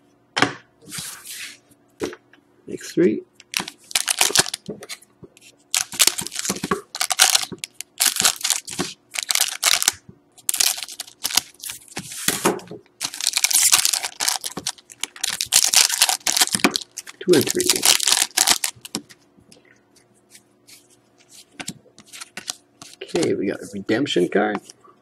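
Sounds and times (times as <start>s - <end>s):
foil wrappers crinkling: 3.5s - 5.0s, 5.7s - 12.2s, 13.0s - 19.2s, 20.7s - 23.9s.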